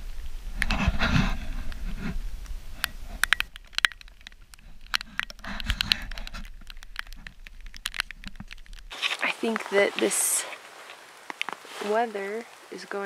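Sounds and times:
low rumble: 0.0s - 8.9s
camera scraping against rain gear: 0.6s - 12.4s
sharp ticks and taps: 3.2s - 8.9s.

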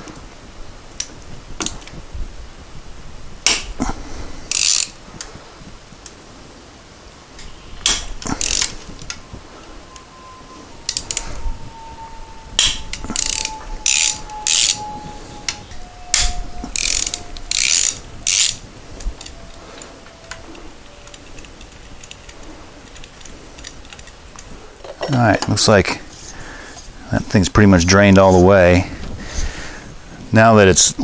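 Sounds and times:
hand ratchet clicking: 4.5s - 5.0s, 7.4s - 9.3s, 10.8s - 24.5s.

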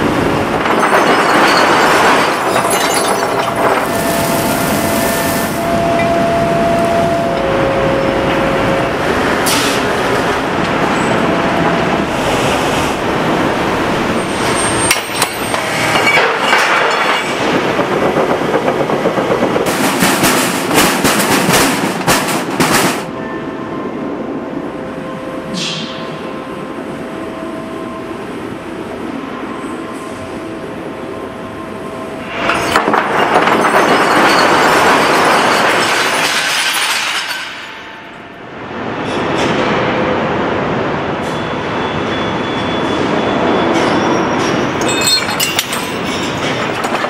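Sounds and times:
industrial furnace din: 0.0s - 23.3s
metal clanks and knocks: 0.6s - 3.9s, 14.8s - 23.1s, 43.8s - 47.0s
scrap metal clatter: 14.8s - 17.6s, 32.4s - 37.9s.

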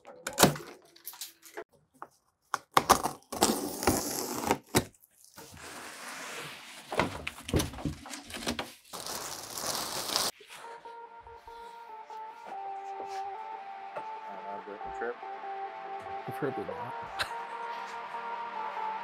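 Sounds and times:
plastic sheeting crinkling: 5.2s - 10.8s
music: 10.4s - 19.0s.

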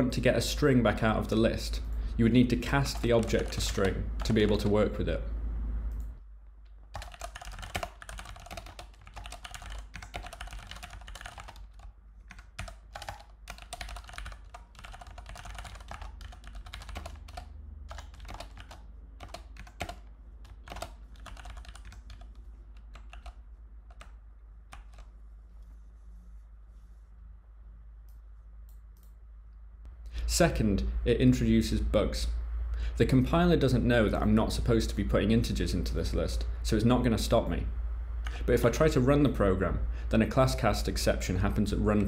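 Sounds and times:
typing on computer keyboard: 2.9s - 4.6s, 6.9s - 25.1s.

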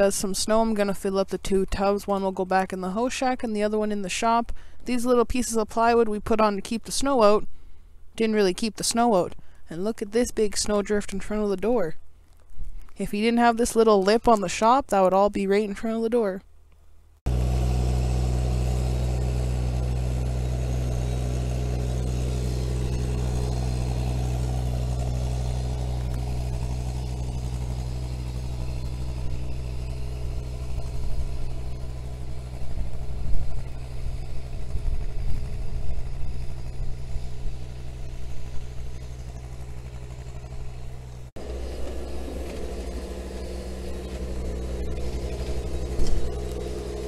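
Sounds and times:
excavator engine running: 17.3s - 47.0s.

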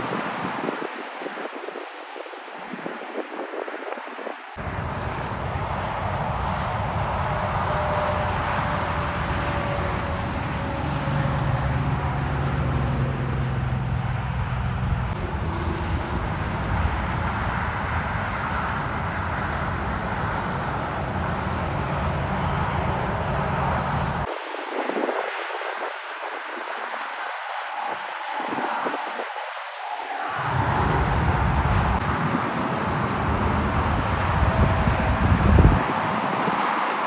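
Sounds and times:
trucks and cars passing: 0.0s - 37.0s
wind buffeting microphone: 0.0s - 37.0s
low vehicle hum: 4.6s - 24.3s.

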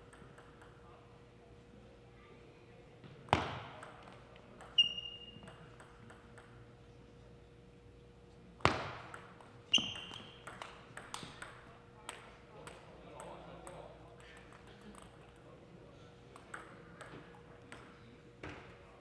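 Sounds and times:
table tennis ball cracks: 8.6s - 12.8s.

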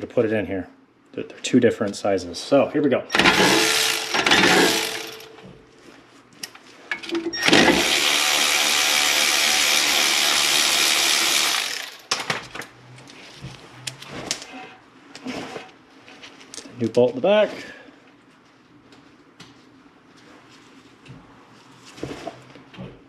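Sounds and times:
power tool spinning a bolt: 3.1s - 5.4s, 7.4s - 12.1s
handling clicks and clinks: 3.1s - 5.6s.

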